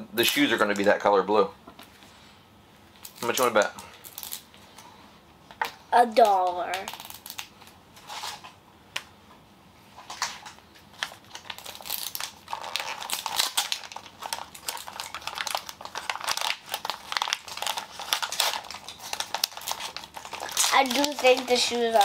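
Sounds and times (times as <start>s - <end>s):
plastic wrapping crinkling: 2.9s - 4.6s, 6.2s - 8.6s, 10.1s - 22.0s.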